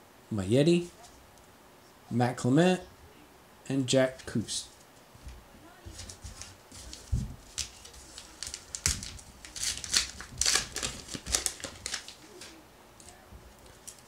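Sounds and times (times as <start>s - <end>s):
paper wrapper tearing and crinkling: 6.8s - 12.6s.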